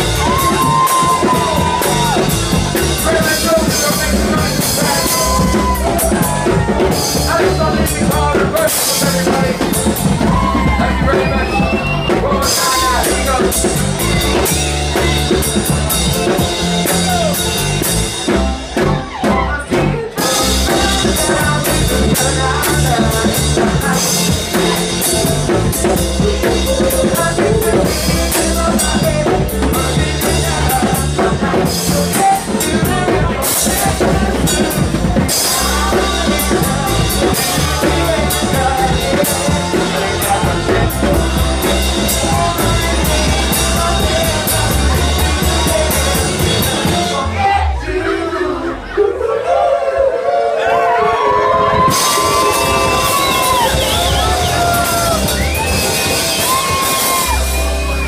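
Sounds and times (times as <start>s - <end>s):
person singing: 0.0s - 17.8s, 19.1s - 58.0s
live band playing loud: 0.0s - 49.0s, 50.7s - 58.0s.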